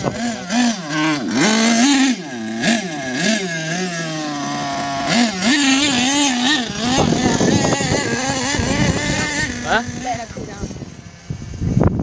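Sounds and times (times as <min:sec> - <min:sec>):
wind noise on microphone: 0:00.0 - 0:02.0, 0:04.7 - 0:12.0
rc car engine revving: 0:00.0 - 0:11.9.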